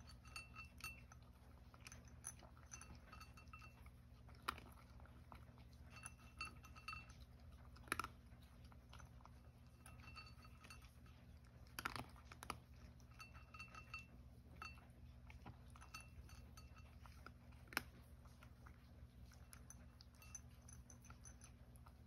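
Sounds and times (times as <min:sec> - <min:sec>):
clinks against ceramic bowl: 0:00.0 - 0:04.9, 0:05.8 - 0:08.1, 0:09.7 - 0:11.1, 0:11.8 - 0:17.3, 0:19.5 - 0:21.9
cat crunching dry kibble: 0:00.0 - 0:13.8, 0:14.4 - 0:22.0.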